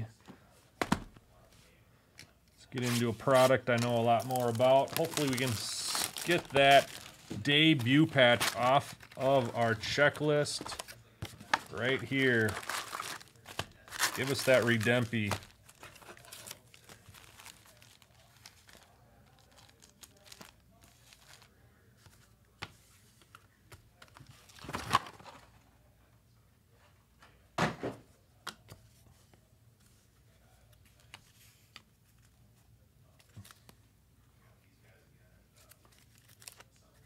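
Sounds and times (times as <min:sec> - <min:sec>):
wrapper crinkling and tearing: 0:02.8 - 0:21.6, 0:35.6 - 0:37.0.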